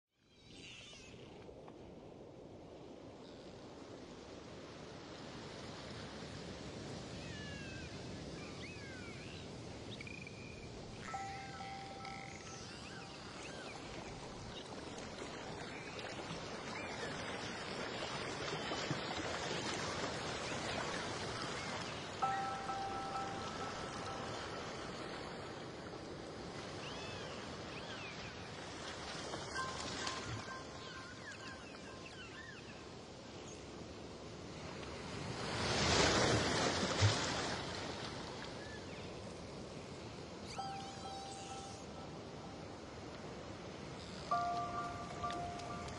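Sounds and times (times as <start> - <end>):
underwater rushing and sloshing: 10.8 - 33.1, 39.3 - 45.9
background music with held notes: 11.0 - 13.4, 22.2 - 25.4, 29.5 - 31.8, 40.6 - 42.6, 44.3 - 45.9.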